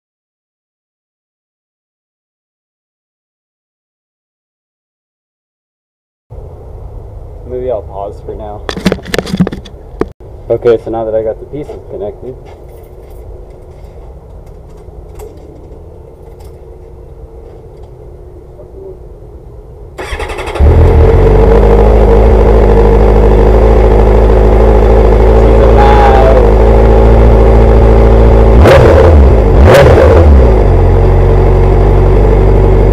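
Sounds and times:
motorcycle starter cranking: 0:20.0 - 0:20.9
motorcycle engine idling loudly: 0:20.5 - 0:28.5.

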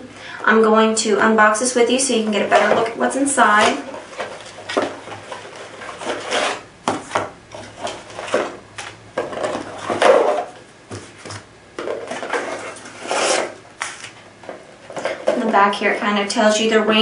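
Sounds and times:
cardboard scraping and rubbing: 0:03.6 - 0:08.6, 0:12.0 - 0:14.1
paper rustling: 0:12.1 - 0:14.2.

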